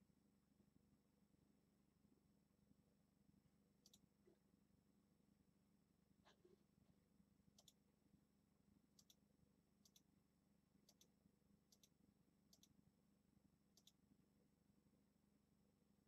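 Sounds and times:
faint computer mouse clicks: 0:03.8 - 0:04.0, 0:07.6 - 0:07.8, 0:09.0 - 0:09.2, 0:09.8 - 0:10.1, 0:10.9 - 0:11.1, 0:11.7 - 0:12.8, 0:13.8 - 0:14.0.

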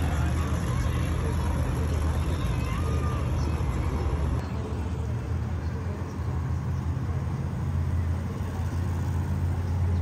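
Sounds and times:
truck engine rumbling: 0:00.0 - 0:10.0.

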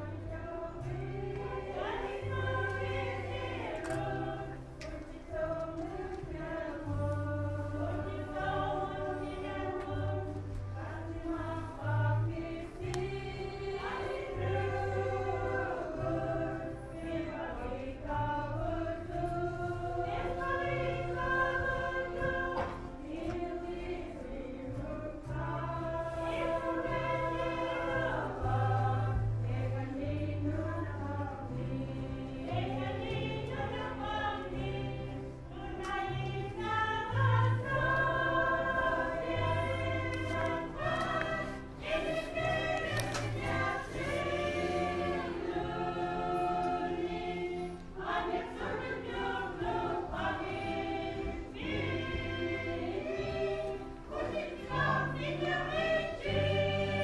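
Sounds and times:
group singing a hymn: 0:00.0 - 0:57.0.

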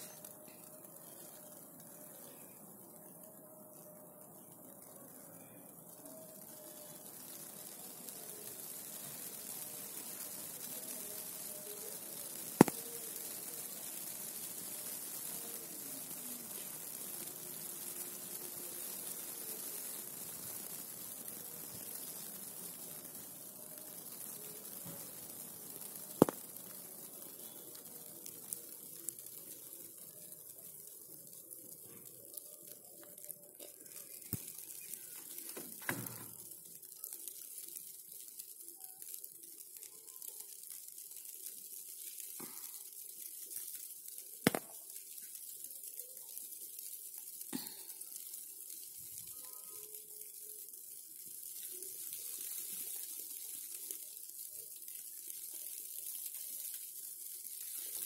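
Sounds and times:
sharp electrical snaps: 0:06.3 - 0:58.0
electrical sizzling and hissing: 0:06.4 - 0:33.0.

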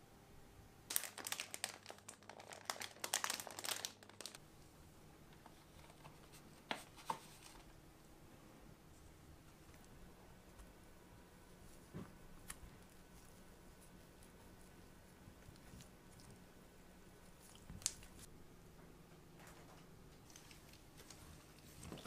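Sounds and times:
plastic packaging crinkling: 0:00.9 - 0:04.4.

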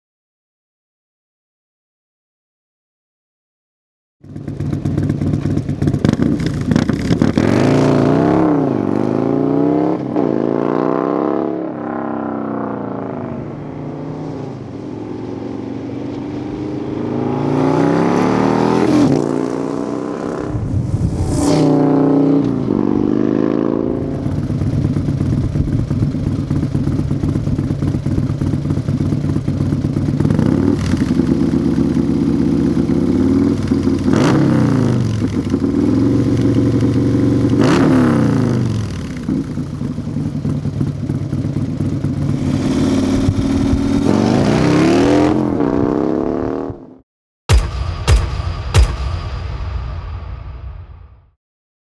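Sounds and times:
motorcycle engine revving and idling: 0:04.2 - 0:20.6, 0:21.8 - 0:47.0.

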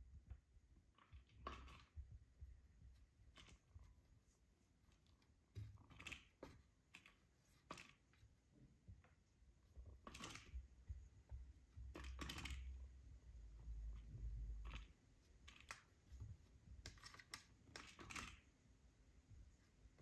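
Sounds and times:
kitten claws clicking on plastic toy: 0:11.9 - 0:12.8, 0:16.8 - 0:18.5.

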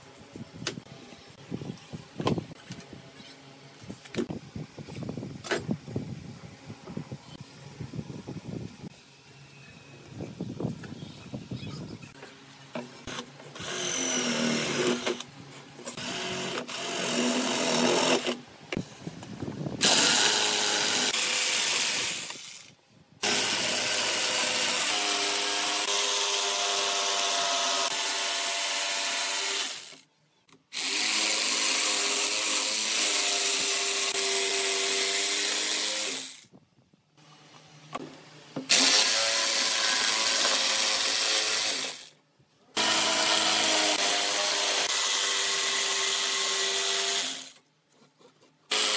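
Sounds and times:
electric jigsaw sawing: 0:13.1 - 0:15.2, 0:15.9 - 0:18.4, 0:19.8 - 0:30.0, 0:30.7 - 0:36.4, 0:38.7 - 0:42.2, 0:42.8 - 0:47.6, 0:48.7 - 0:48.9
cordless drill boring wood: 0:13.1 - 0:15.3, 0:15.9 - 0:18.4, 0:19.8 - 0:30.0, 0:30.7 - 0:36.5, 0:38.7 - 0:42.2, 0:42.8 - 0:47.6, 0:48.7 - 0:48.9.

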